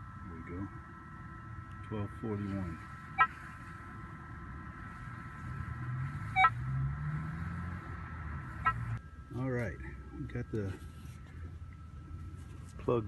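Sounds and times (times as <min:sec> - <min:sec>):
metal detector steady tone: 0:00.0 - 0:06.8.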